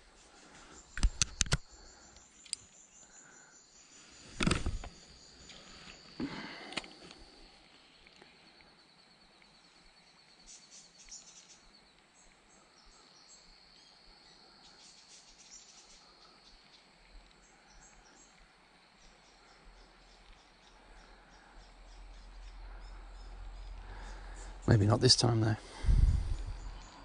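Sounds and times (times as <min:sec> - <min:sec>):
high insect trill: 0:00.0 - 0:27.0
small birds chirping: 0:00.0 - 0:27.0
low rumble: 0:25.7 - 0:27.0.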